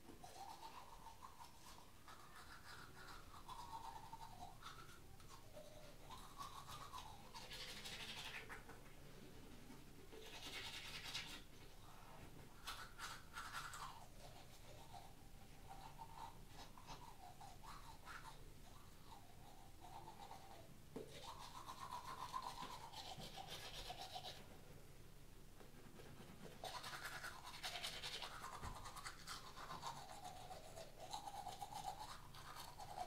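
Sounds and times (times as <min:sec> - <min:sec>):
toothbrush scrubbing teeth: 0:00.2 - 0:08.9, 0:10.0 - 0:11.9, 0:12.5 - 0:24.5, 0:25.7 - 0:33.0.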